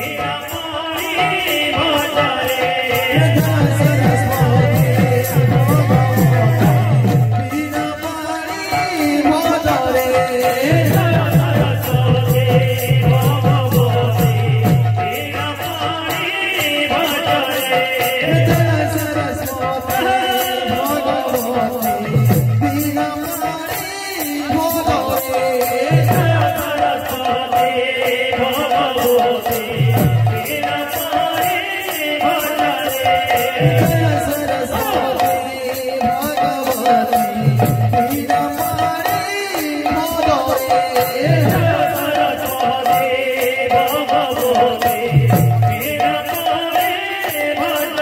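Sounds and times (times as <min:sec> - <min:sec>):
voices singing: 0:00.0 - 0:48.0.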